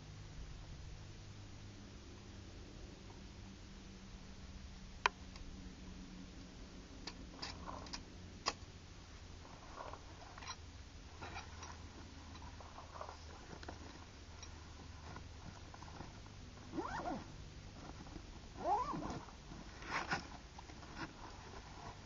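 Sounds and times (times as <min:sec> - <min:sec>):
light clicks and rustles: 0:07.0 - 0:08.7, 0:09.4 - 0:22.0.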